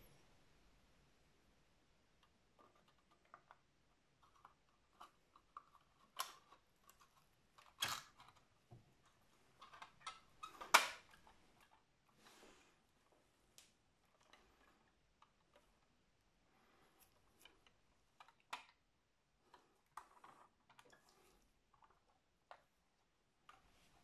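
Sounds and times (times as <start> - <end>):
plastic parts clicking: 2.2 - 11.8.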